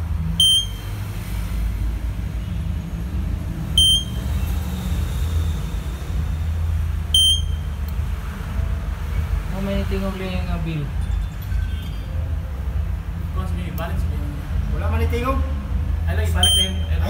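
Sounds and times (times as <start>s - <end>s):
alarm panel buzzer beeps: 0.4s - 0.9s, 3.8s - 4.2s, 7.2s - 7.6s.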